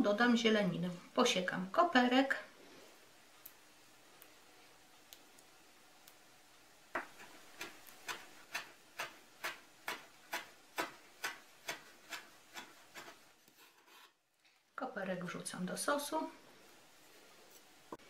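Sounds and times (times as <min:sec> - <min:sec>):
knife chopping on wooden board: 0:07.0 - 0:13.2.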